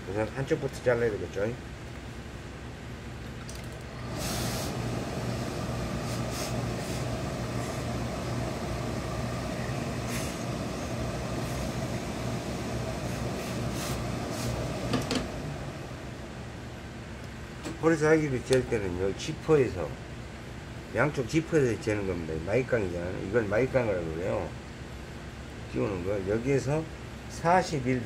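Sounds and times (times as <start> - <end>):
steam iron hissing: 4.0 - 15.5.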